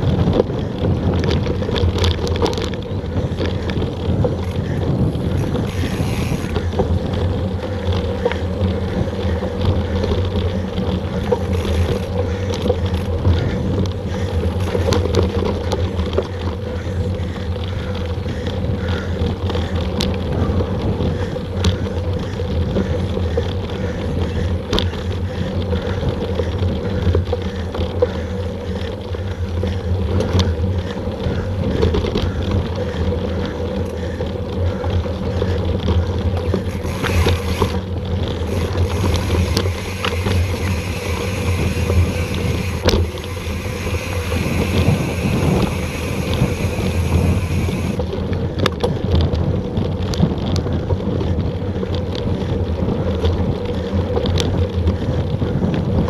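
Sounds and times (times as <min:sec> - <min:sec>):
mountain bike rumbling and rattling: 0:00.0 - 0:56.0
wind buffeting microphone: 0:00.0 - 0:56.0
clicks and knocks from bumps: 0:00.2 - 0:16.6, 0:21.6 - 0:30.9.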